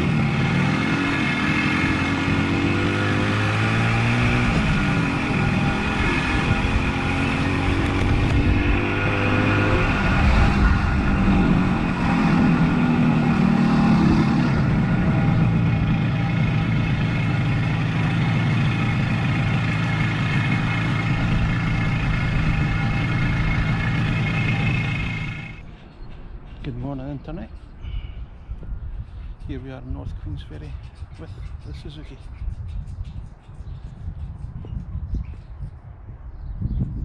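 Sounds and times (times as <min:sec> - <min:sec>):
motorcycle engine running: 0:00.0 - 0:25.6.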